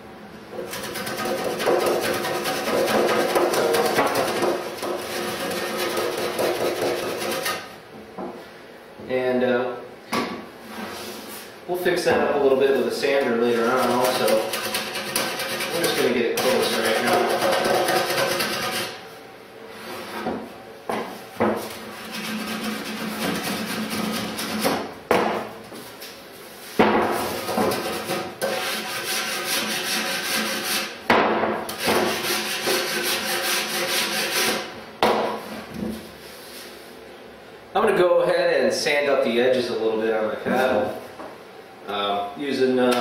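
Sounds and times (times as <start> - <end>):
block plane shaving wood: 0.6 - 7.7, 13.5 - 19.0, 22.0 - 24.8, 27.7 - 30.9, 31.7 - 34.7.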